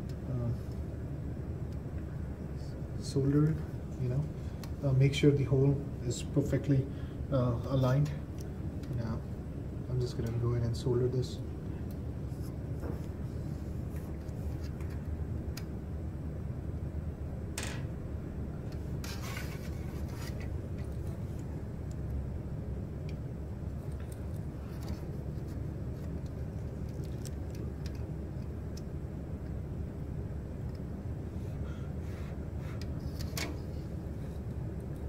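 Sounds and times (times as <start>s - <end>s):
steady low rumble: 0.0s - 35.0s
small handling clicks and rubbing: 23.8s - 28.9s.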